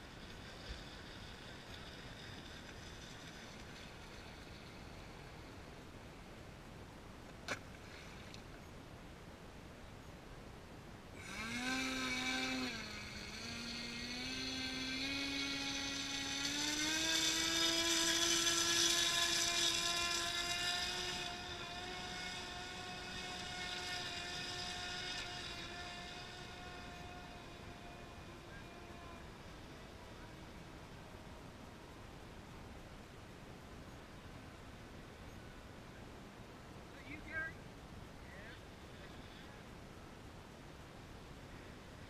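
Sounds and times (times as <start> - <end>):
model boat motor whining: 0.0 - 5.7, 11.2 - 31.6.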